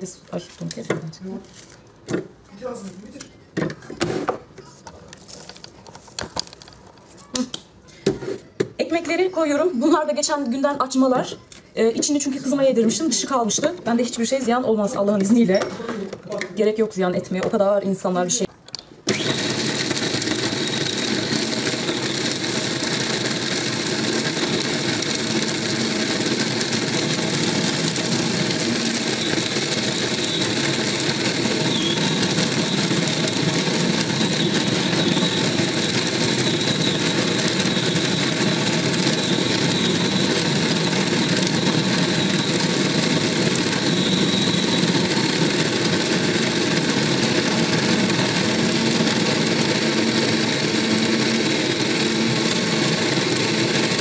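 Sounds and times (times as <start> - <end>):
food processor motor running: 19.1 - 54.0.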